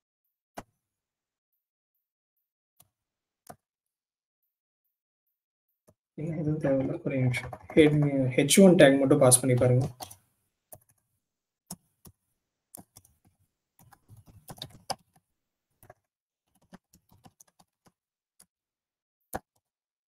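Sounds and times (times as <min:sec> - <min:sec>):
keyboard keys clicking: 0:13.8 - 0:15.1.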